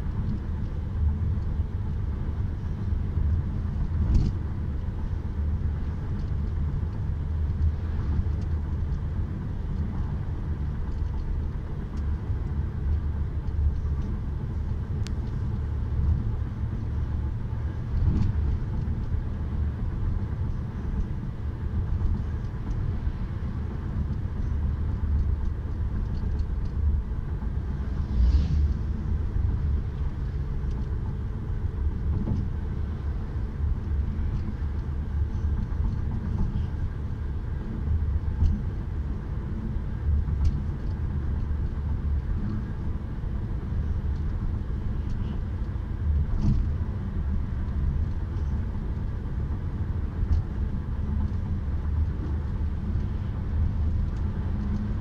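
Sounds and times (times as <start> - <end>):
car road rumble and tyre noise: 0.0 - 55.0
swish: 27.8 - 29.0.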